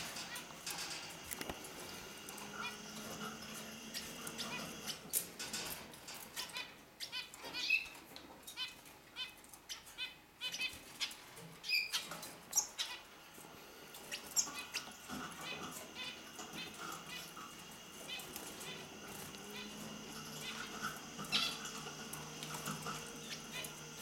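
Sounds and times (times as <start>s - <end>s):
wings fluttering: 0.0s - 6.2s, 13.9s - 24.0s
finches chirping and twittering: 0.0s - 24.0s.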